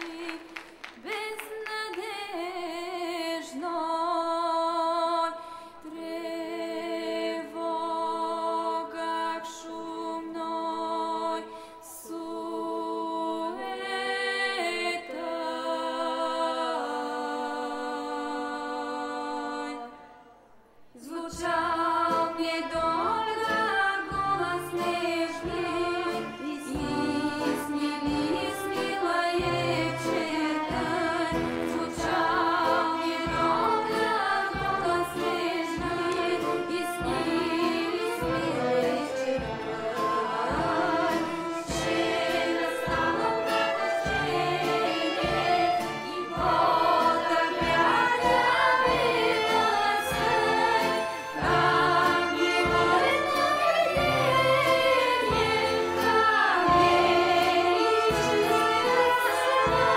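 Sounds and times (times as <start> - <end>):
choir singing: 0.0 - 59.9
steady drum beat: 24.1 - 59.9.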